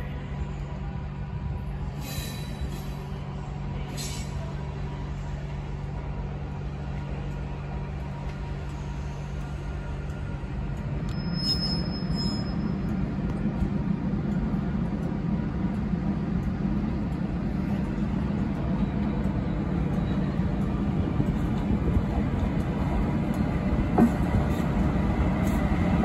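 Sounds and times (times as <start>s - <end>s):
electric locomotive humming: 0.0s - 26.0s
high squeal: 11.1s - 12.8s.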